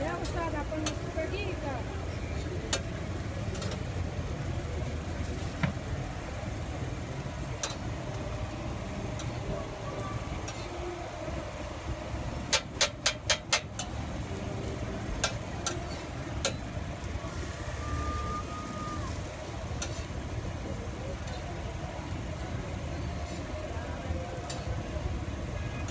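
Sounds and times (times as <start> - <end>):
metal spatula tapping on griddle: 0.2 - 1.0, 12.5 - 14.0.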